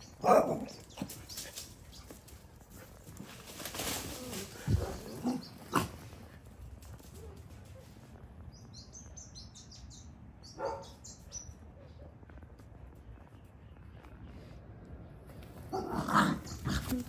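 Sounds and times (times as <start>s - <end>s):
small birds chirping: 0.0s - 3.4s, 4.2s - 17.0s
dogs playing rough: 0.2s - 8.2s, 15.4s - 17.0s.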